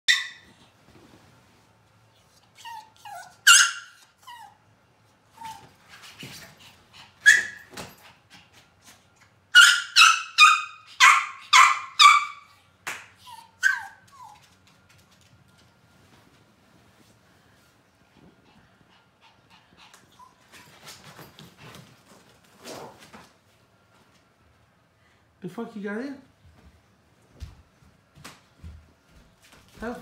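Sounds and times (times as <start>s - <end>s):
small dog yipping: 0.1s - 0.6s, 2.6s - 4.6s, 7.2s - 7.7s, 9.6s - 12.5s, 13.2s - 14.4s
small dog whining: 2.5s - 4.6s, 13.2s - 14.4s.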